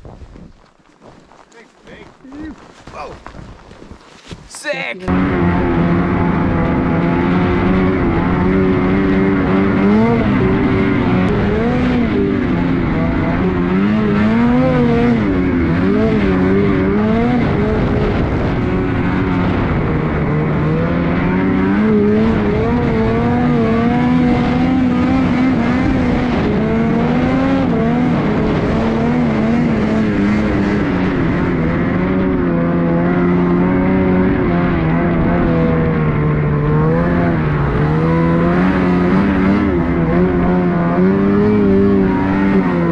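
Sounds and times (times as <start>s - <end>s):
snowmobile engine revving: 4.5s - 42.9s.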